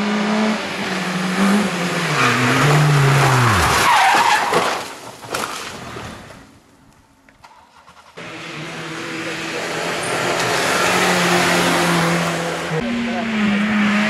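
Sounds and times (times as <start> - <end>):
tyres skidding: 0.0 - 6.6, 7.4 - 14.0
car crashing into guardrail: 3.6 - 6.1.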